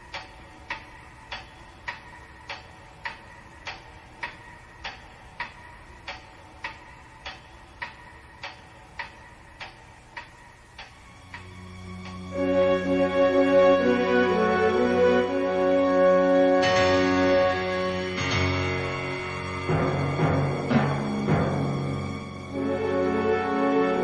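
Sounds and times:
clock ticking: 0:00.0 - 0:12.3
soft music: 0:00.0 - 0:24.0.

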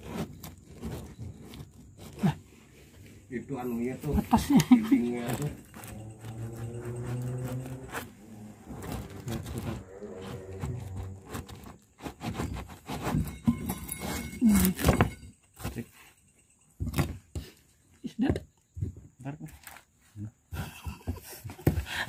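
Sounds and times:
hornets buzzing: 0:05.0 - 0:11.8.

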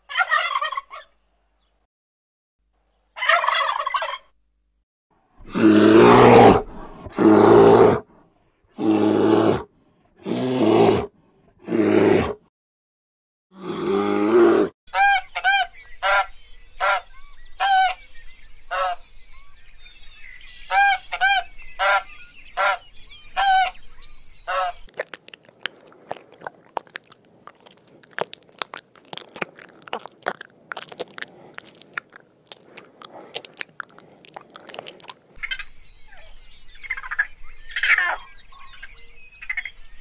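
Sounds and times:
bear calling roughly: 0:05.4 - 0:08.0, 0:25.0 - 0:35.2.

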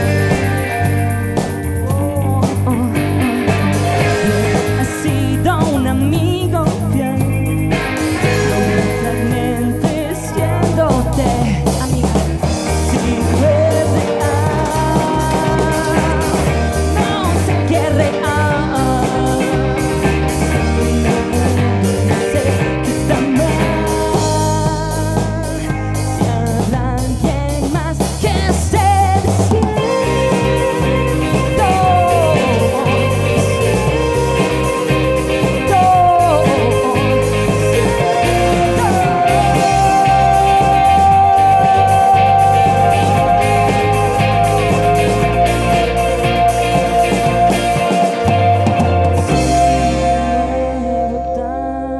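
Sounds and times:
drum kit: 0:00.0 - 0:51.1
electric guitars: 0:00.0 - 0:51.9
keyboards: 0:00.0 - 0:51.9.

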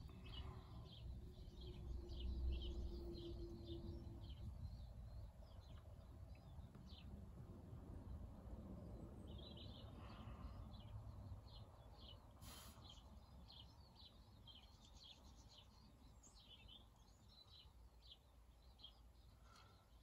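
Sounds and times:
small birds chirping: 0:00.0 - 0:07.4, 0:08.0 - 0:20.0
brief hiss: 0:12.4 - 0:12.9.

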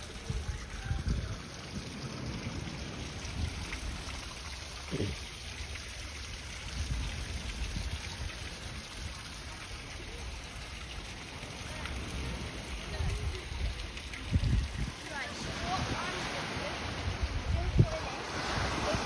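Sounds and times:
wind buffeting microphone: 0:00.0 - 0:04.3, 0:12.6 - 0:19.0
sea surf: 0:15.1 - 0:19.0.

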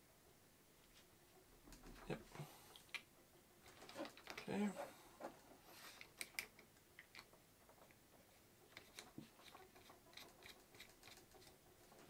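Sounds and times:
small plastic clicks and rustles: 0:02.8 - 0:04.5, 0:05.2 - 0:12.0.

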